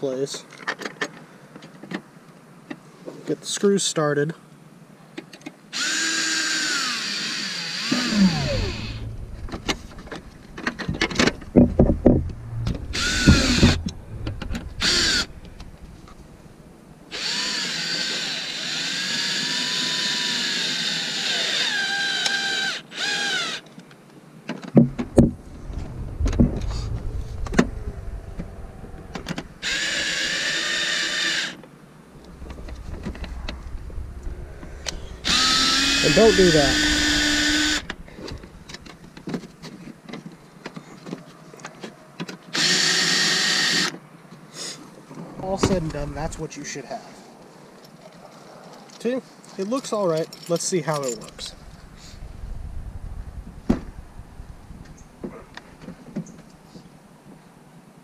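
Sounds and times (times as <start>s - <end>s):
power drill driving screws: 5.8s - 9.0s, 17.1s - 23.6s, 35.3s - 37.8s, 42.5s - 43.9s.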